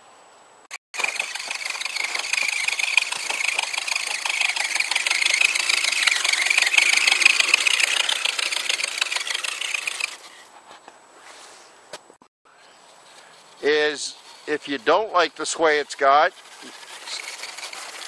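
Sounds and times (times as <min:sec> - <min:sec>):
toy truck motor whirring: 0:00.7 - 0:10.4, 0:13.5 - 0:18.0.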